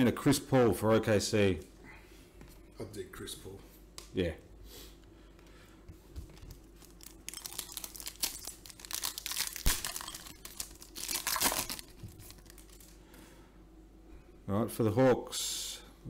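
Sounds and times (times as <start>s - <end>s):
wrapper crinkling and tearing: 6.6s - 13.0s.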